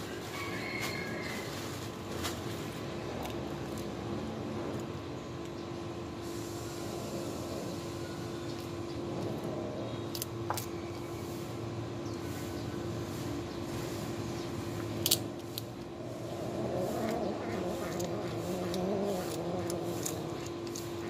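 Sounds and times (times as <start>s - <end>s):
kittens crunching shells: 2.5s - 5.6s, 8.5s - 10.8s, 14.8s - 21.0s.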